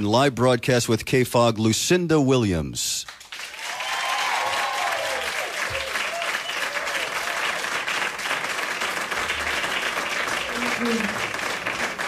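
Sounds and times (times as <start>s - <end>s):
audience applauding: 3.1s - 12.0s
whoops and cheers: 3.5s - 7.6s.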